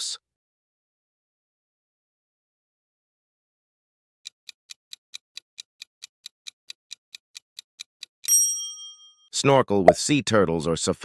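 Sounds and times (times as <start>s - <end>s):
timer ticking: 4.4s - 8.4s.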